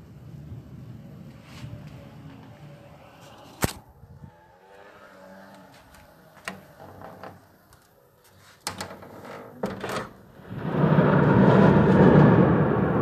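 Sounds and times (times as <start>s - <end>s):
thunder rumbling: 9.8s - 13.0s.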